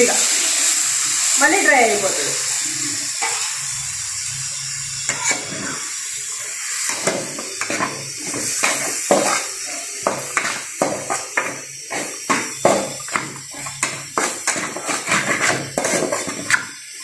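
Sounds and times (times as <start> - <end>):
meat sizzling in a pan: 0.0 - 17.0
stock boiling off: 0.0 - 17.0
spatula scraping a metal pan: 5.1 - 5.8, 6.4 - 16.8.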